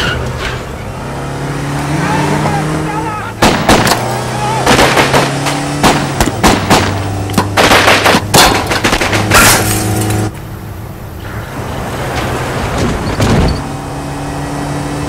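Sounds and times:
car engine running: 0:00.6 - 0:10.9
rapid gunshots: 0:03.4 - 0:09.5
glass breaking: 0:07.7 - 0:10.1.

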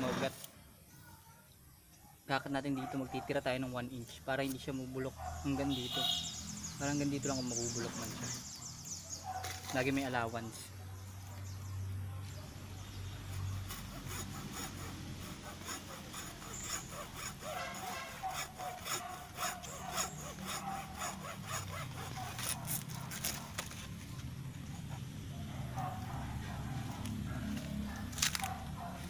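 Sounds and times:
hacksaw cutting plant stem: 0:07.0 - 0:10.2, 0:13.2 - 0:29.0.

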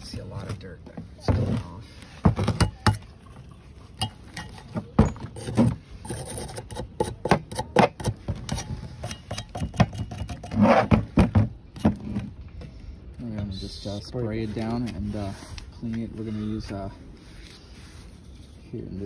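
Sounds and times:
scrubbing and scraping metal parts: 0:00.0 - 0:12.7.

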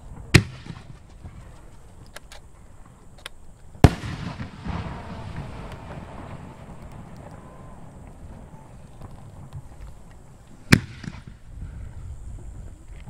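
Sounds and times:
firework shell booming with echo: 0:00.1 - 0:01.8, 0:03.8 - 0:11.8.

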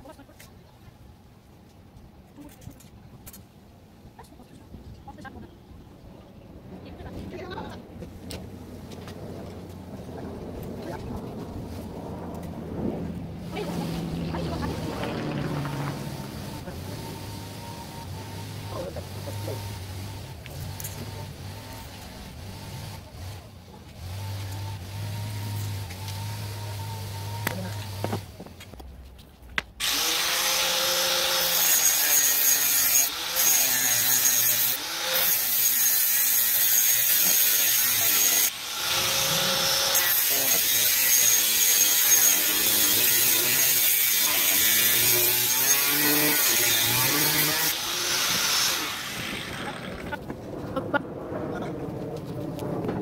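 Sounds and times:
angle grinder cutting metal: 0:13.5 - 0:28.2, 0:29.8 - 0:50.2.

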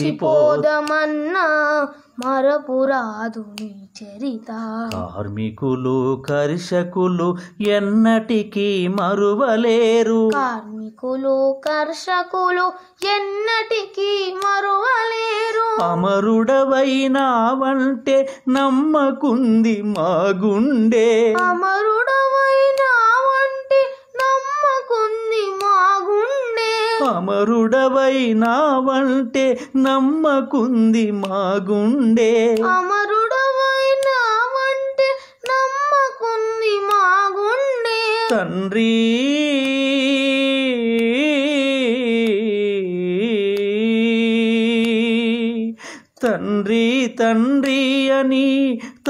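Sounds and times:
man singing a long note: 0:00.0 - 0:00.8
man singing: 0:00.0 - 0:02.4, 0:03.4 - 0:12.2, 0:15.0 - 0:23.6, 0:26.3 - 0:34.7, 0:37.4 - 0:49.0
boy singing high notes: 0:00.0 - 0:05.1, 0:32.6 - 0:38.4.

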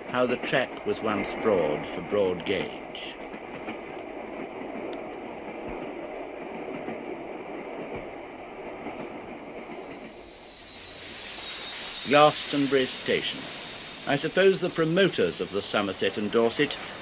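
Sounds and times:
steam train running: 0:00.0 - 0:17.0
faint thumps from track: 0:02.3 - 0:10.2.

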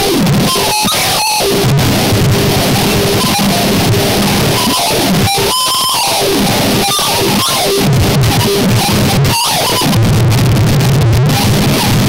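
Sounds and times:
harsh noise music: 0:00.0 - 0:12.0
held high whine: 0:00.0 - 0:12.0.

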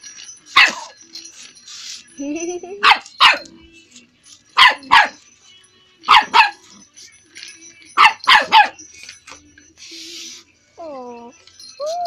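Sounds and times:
dog barking: 0:00.6 - 0:01.0, 0:02.8 - 0:03.5, 0:04.6 - 0:05.2, 0:06.1 - 0:06.7, 0:08.0 - 0:08.8.

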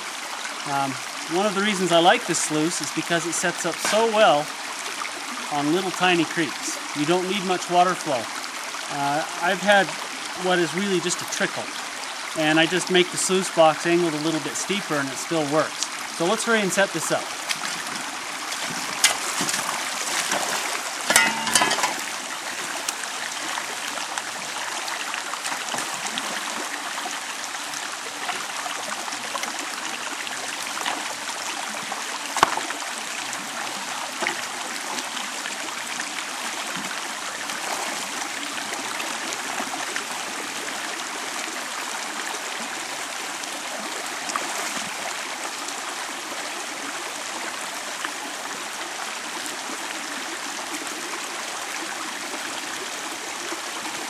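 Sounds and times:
creek water running over rocks: 0:00.0 - 0:54.0
sluice box knocks and clatters: 0:03.8 - 0:04.3, 0:18.6 - 0:22.2, 0:32.3 - 0:32.7.

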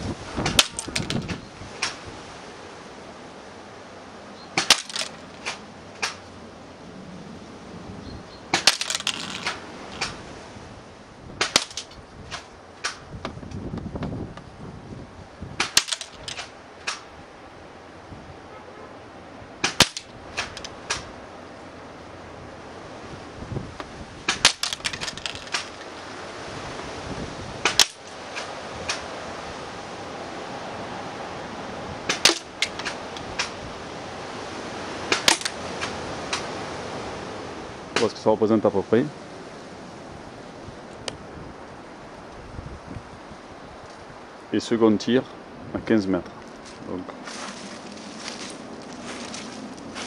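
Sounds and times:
loud snaps: 0:00.4 - 0:02.0, 0:04.6 - 0:06.3, 0:08.5 - 0:10.2, 0:11.4 - 0:13.1, 0:15.6 - 0:17.1, 0:19.6 - 0:21.1, 0:27.6 - 0:29.1, 0:35.1 - 0:36.5
pellets hitting paper target: 0:04.6 - 0:06.2, 0:15.6 - 0:17.0, 0:19.6 - 0:21.0, 0:35.1 - 0:35.6.

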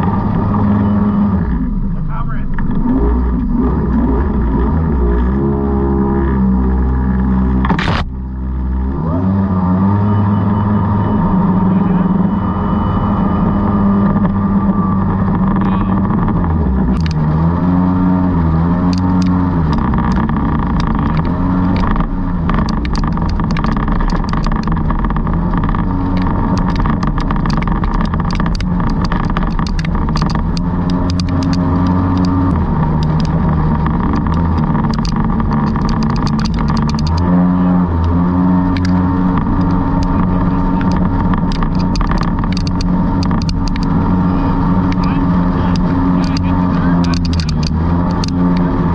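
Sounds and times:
jet boat engine running: 0:00.0 - 0:48.9
sharp clicks: 0:15.3 - 0:17.3, 0:18.8 - 0:37.4, 0:38.0 - 0:44.0, 0:44.8 - 0:48.7.

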